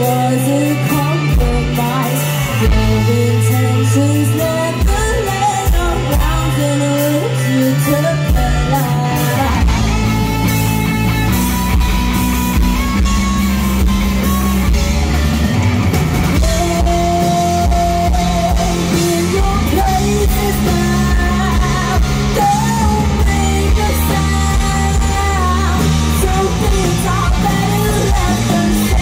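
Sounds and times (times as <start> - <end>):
woman singing: 0.0 - 10.0, 16.3 - 29.0
live rock band playing: 0.0 - 29.0.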